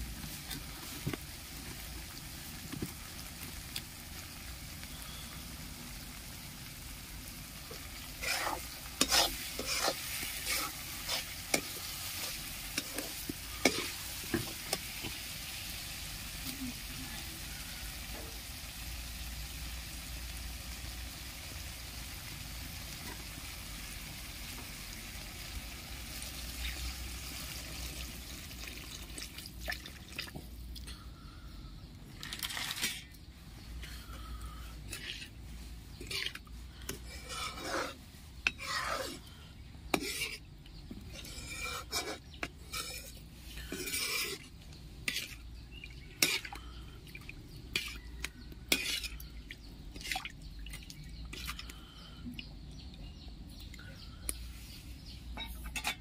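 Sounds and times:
spices frying with a sizzle: 0:00.0 - 0:29.6
metal spoon scraping a pan: 0:07.7 - 0:15.2, 0:34.8 - 0:46.6, 0:47.7 - 0:49.3, 0:55.3 - 0:56.0.

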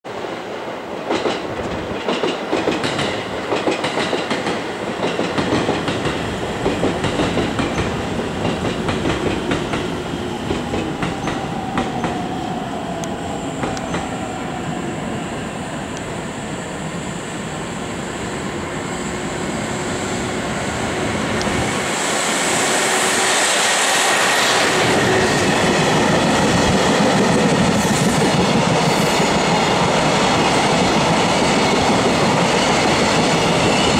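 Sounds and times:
train rolling rush: 0:00.1 - 0:33.9
train wheels clattering over rail joints: 0:01.1 - 0:09.9.

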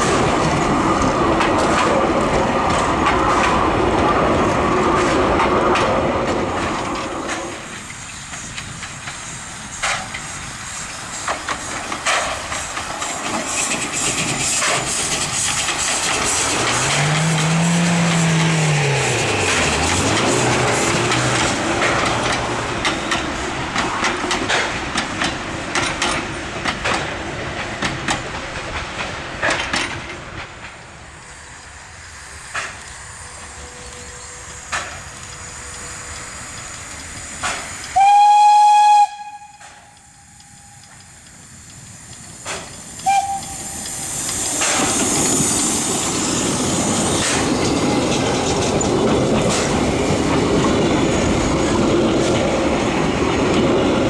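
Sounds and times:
wheels clicking over rail joints: 0:00.0 - 0:10.5, 0:11.1 - 0:31.0, 0:32.4 - 0:54.0
steam train running past: 0:00.0 - 0:54.0
steam whistle blast: 0:37.9 - 0:40.1, 0:43.0 - 0:43.8.

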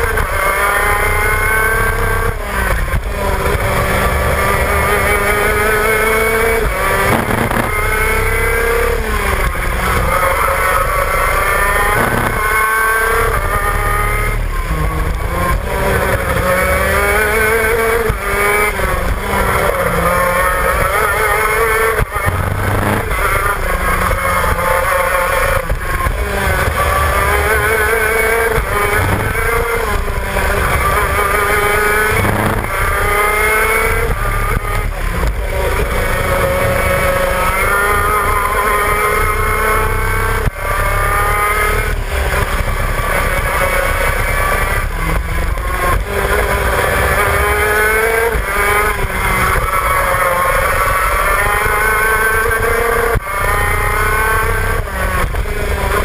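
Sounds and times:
two-stroke kart engine revving: 0:00.0 - 0:56.0
low wind rumble: 0:14.5 - 0:39.4.

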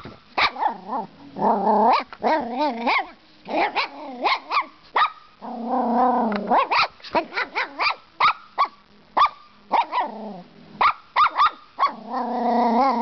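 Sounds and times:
puppy barking: 0:00.4 - 0:00.8, 0:01.9 - 0:05.3, 0:06.5 - 0:10.1, 0:10.8 - 0:12.0.

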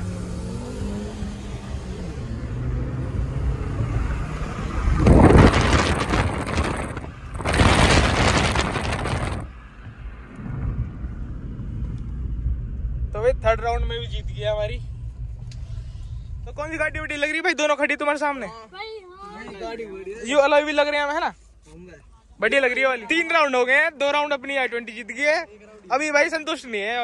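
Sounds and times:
car engine accelerating hard: 0:00.0 - 0:17.4
loud rushing noise: 0:00.0 - 0:18.2.

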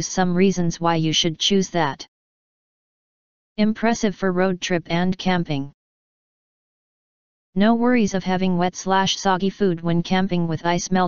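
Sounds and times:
text-to-speech voice speaking: 0:00.0 - 0:02.1, 0:03.6 - 0:05.8, 0:07.6 - 0:11.0.

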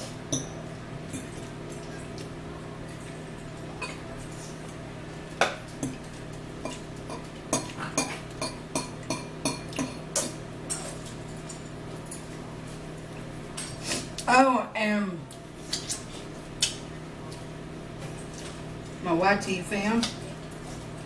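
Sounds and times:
forks clinking against bowls: 0:00.3 - 0:02.3, 0:05.8 - 0:12.3.

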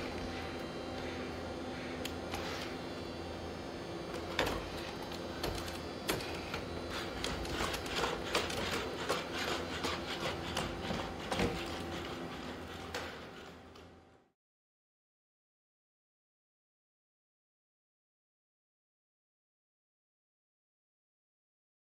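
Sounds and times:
electric motor whine: 0:00.0 - 0:14.3.

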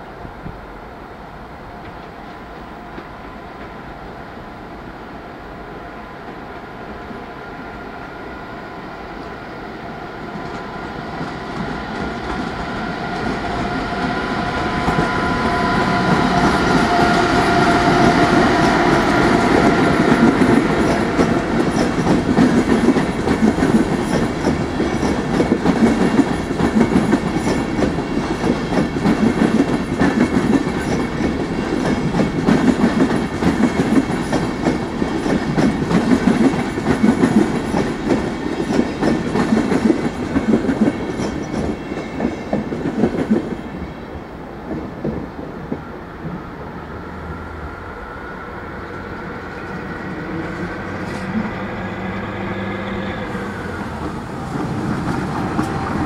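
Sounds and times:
train wheels clattering: 0:10.4 - 0:43.6, 0:53.3 - 0:56.0.

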